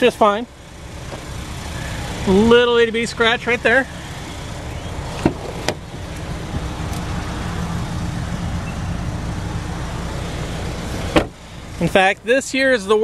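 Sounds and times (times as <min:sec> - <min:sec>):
steady low rumble: 0:00.5 - 0:12.3
car door latch click: 0:05.2 - 0:05.8, 0:11.1 - 0:11.4.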